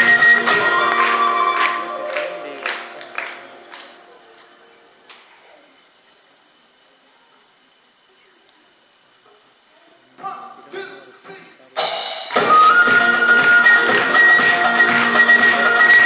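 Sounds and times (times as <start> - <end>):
live band playing loudly: 0.0 - 3.8, 11.8 - 16.0
faint steady hiss: 0.0 - 16.0.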